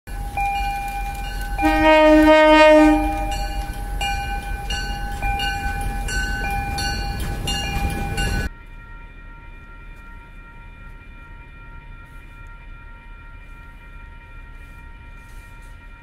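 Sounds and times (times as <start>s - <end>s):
train horn chord: 0.1s - 6.2s, 7.6s - 16.0s
train wheels striking rails: 0.1s - 8.5s
faint steady tones: 0.1s - 16.0s
steady ringing: 0.1s - 16.0s.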